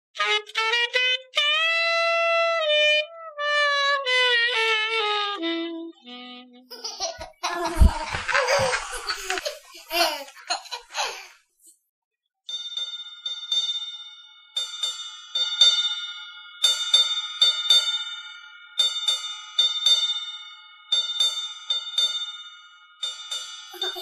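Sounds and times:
falling woodwind notes: 2.6 - 6.7
squeaky commotion with laughter: 6.7 - 11.3
bell-like chimes ringing: 12.5 - 24.0.

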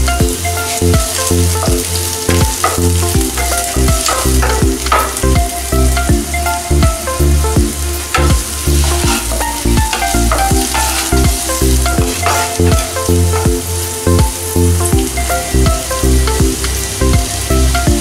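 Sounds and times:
background music: 0.0 - 18.0
vegetables sizzling in oil: 0.0 - 18.0
spatula scraping pan: 8.1 - 13.2.

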